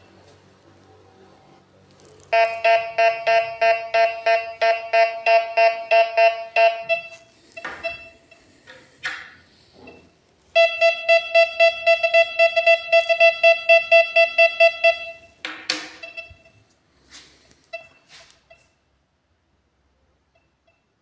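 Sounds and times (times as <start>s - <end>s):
metal detector rapid pulsing beep: 2.4s - 8.4s, 10.6s - 15.2s.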